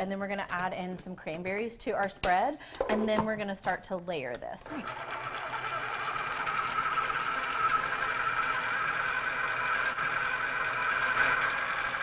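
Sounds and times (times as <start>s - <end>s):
food processor motor whining: 4.7s - 12.0s.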